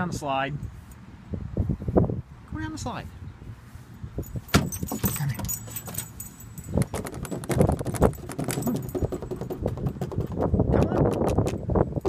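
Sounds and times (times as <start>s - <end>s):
collar tags jingling: 4.2s - 10.4s
paws clicking on wooden boards: 6.8s - 11.6s.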